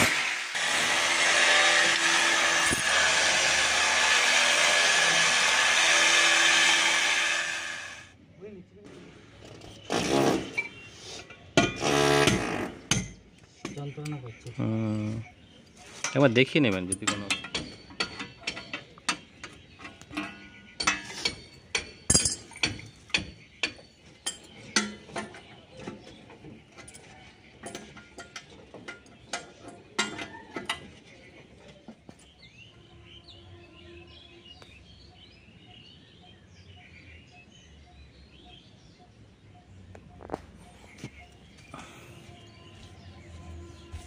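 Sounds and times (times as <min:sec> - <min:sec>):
birds chirping: 0:02.0 - 0:44.0
wrench clinking on metal bolts: 0:16.0 - 0:31.1.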